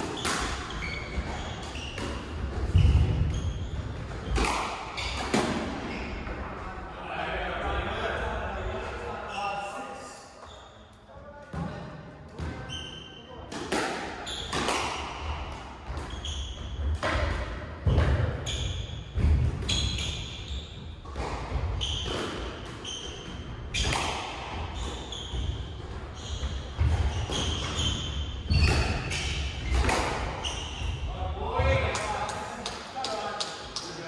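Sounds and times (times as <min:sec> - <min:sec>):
shoes squeaking on wooden floor: 0:00.2 - 0:06.3, 0:24.7 - 0:31.2.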